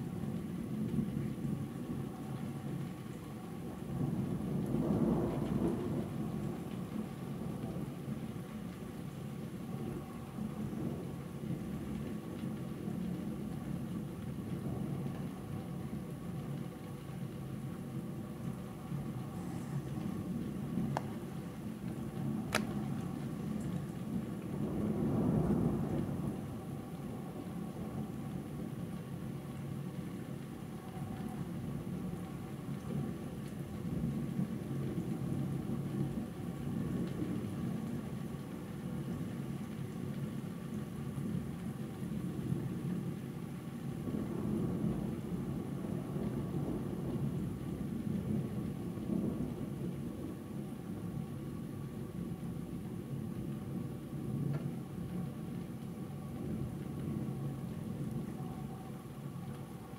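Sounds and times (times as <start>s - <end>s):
distant thunder rumbling: 3.8s - 8.0s, 18.7s - 28.8s, 42.1s - 52.6s.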